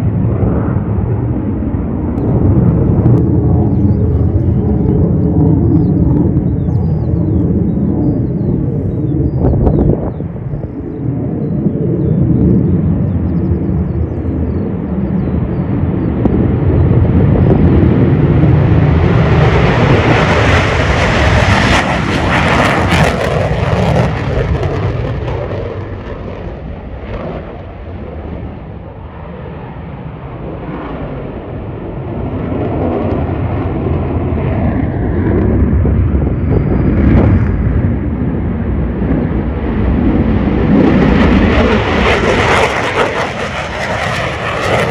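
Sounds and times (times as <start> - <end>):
jet engines roaring at takeoff: 0.0 - 44.9.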